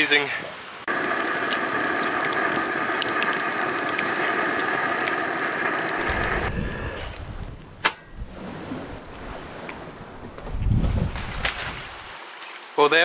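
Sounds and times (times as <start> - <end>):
squid sizzling in hot oil: 0.9 - 6.9
wind rumble on microphone: 6.0 - 12.0.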